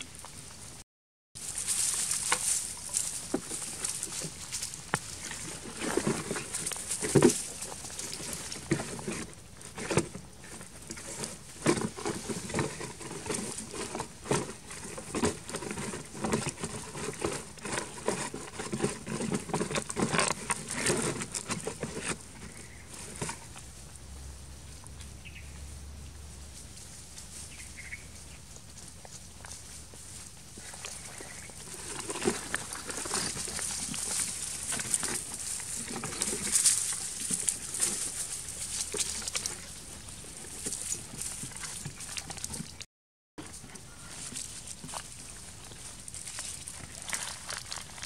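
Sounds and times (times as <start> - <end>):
plastic jerrycan scraping and tapping: 1.7 - 23.6, 30.6 - 42.8.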